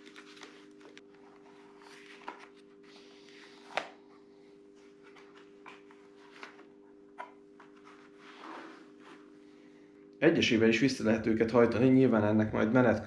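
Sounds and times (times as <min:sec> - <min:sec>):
plastic rustling and handling: 0:00.0 - 0:09.3
steady hum: 0:00.0 - 0:13.0.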